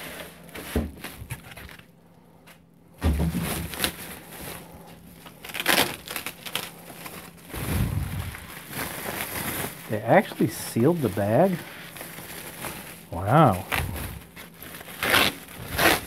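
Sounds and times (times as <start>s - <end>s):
plastic bag crinkling: 3.4s - 16.0s.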